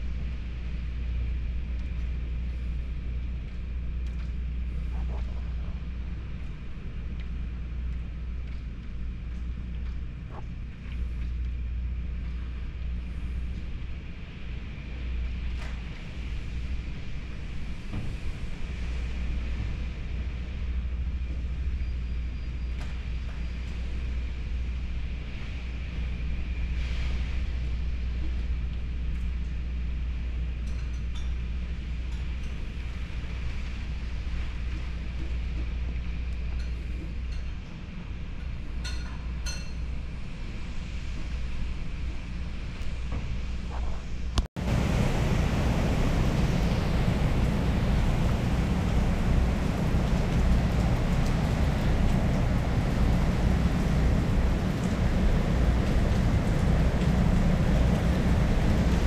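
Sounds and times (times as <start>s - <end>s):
wind rumbling on microphone: 0.0s - 59.0s
light ticks: 7.1s - 11.6s
rain pouring: 44.6s - 59.0s.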